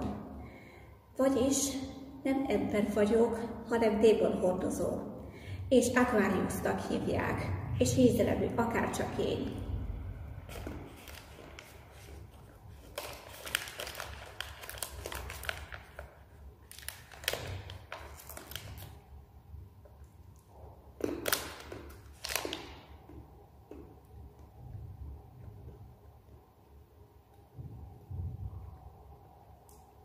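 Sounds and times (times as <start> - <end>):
plastic wrapper crinkling and tearing: 10.4 - 19.3, 19.9 - 23.8.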